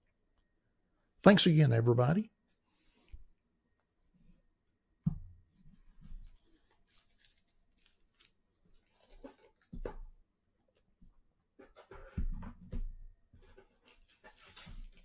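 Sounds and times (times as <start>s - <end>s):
crisp rustling and scraping: 5.8s - 10.0s, 13.4s - 15.0s.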